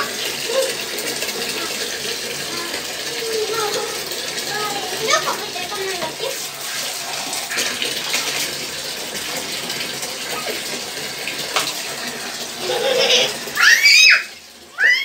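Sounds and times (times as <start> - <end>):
water poured from a mug: 0.0 - 12.6
bathwater splashing in a tub: 0.0 - 15.0
child squealing: 13.1 - 15.0.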